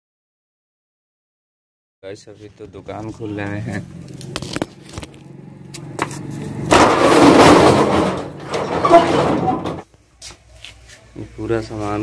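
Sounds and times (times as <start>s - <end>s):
metal rolling shutter rattling: 6.5s - 9.9s.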